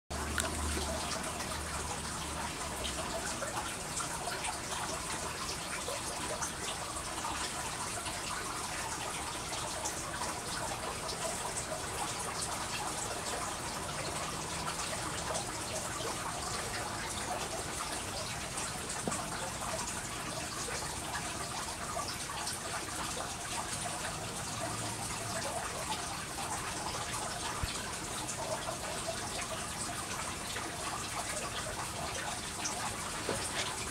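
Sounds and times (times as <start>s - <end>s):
running water trickling and dripping: 0.1s - 33.9s.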